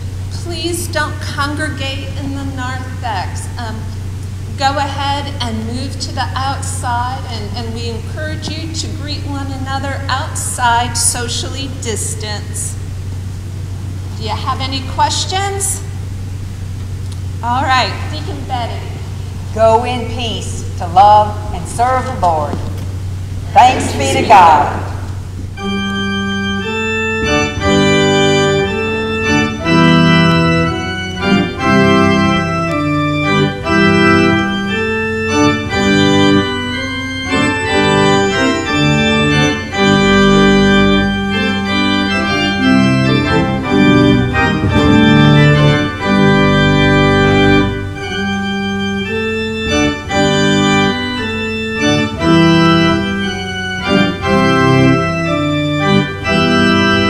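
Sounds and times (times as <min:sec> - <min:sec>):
church organ chords: 0:21.0 - 0:57.0
deep organ pedal note: 0:23.0 - 0:57.0.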